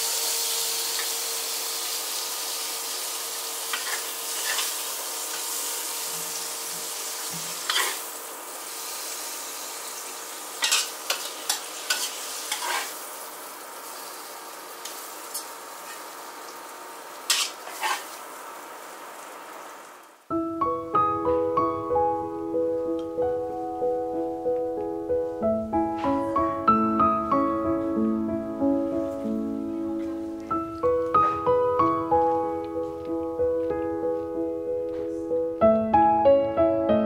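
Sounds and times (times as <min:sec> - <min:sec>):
food sizzling in a wok: 0:00.0 - 0:20.3.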